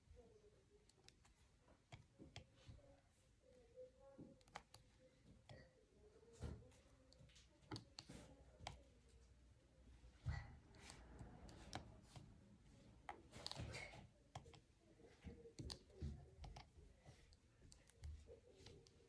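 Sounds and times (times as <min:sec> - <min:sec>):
light clicks and taps of handwork: 0:06.4 - 0:09.4, 0:13.0 - 0:19.0.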